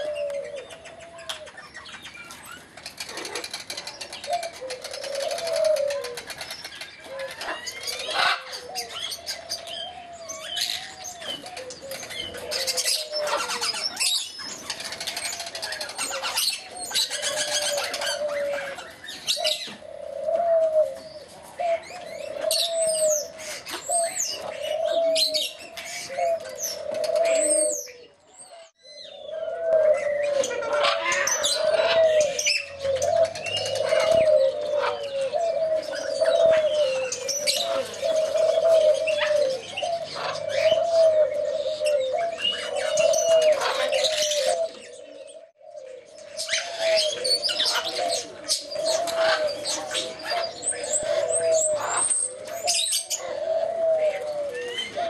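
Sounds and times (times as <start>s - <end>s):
parrots calling and chirping: 0.0s - 19.8s, 30.0s - 45.5s, 46.2s - 53.6s.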